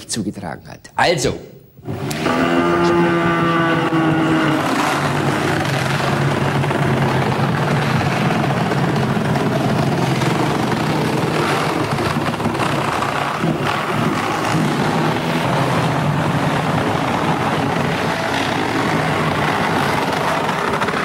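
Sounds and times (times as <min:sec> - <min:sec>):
chainsaw cutting: 0:01.8 - 0:21.0.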